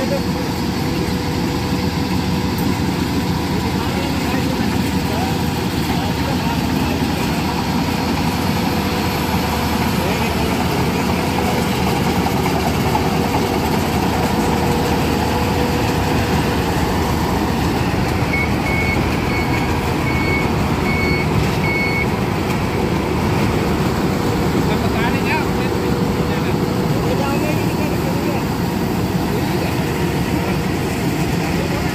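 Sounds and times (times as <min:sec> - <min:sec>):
combine harvester engine drone: 0:00.0 - 0:31.9
short high beeps: 0:18.3 - 0:22.1.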